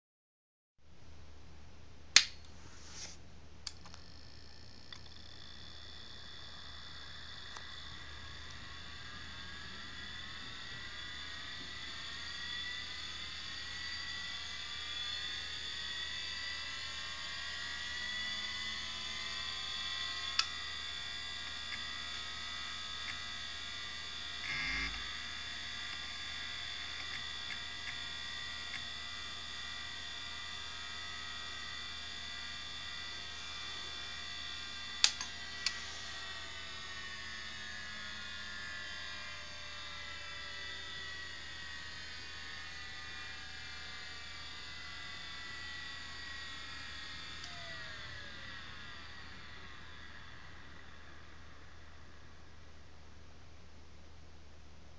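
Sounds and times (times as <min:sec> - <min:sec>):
hard drive whine spinning up: 0:02.5 - 0:53.8
hard drive clicks: 0:24.3 - 0:25.2.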